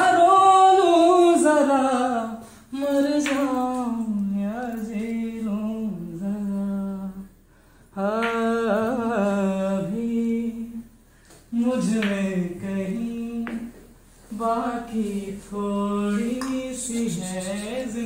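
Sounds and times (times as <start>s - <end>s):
man humming a melody: 16.0s - 18.0s.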